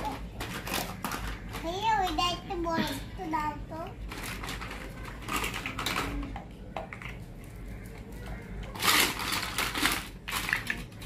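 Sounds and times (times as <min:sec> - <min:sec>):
plastic toys clicking and clattering: 0:00.0 - 0:11.0.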